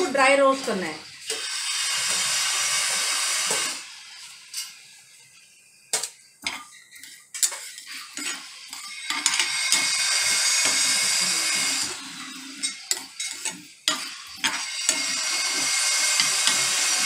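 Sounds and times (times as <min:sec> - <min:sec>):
seeds roasting hiss: 0:09.1 - 0:12.4.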